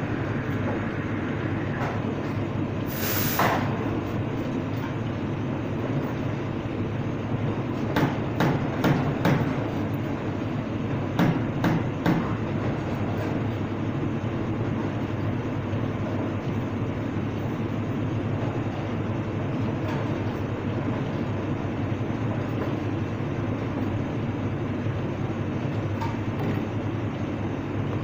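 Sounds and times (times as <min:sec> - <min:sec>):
steady background rumble: 0:00.0 - 0:02.9
short hiss: 0:02.9 - 0:03.6.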